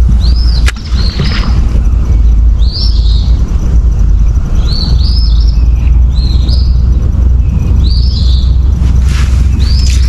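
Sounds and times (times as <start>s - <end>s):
low rumble: 0.0s - 10.0s
songbird chirping: 0.0s - 10.0s.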